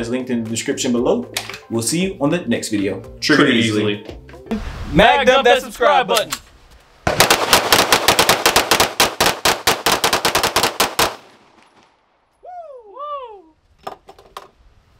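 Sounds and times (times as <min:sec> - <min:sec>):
rapid gunfire: 0:07.1 - 0:11.3.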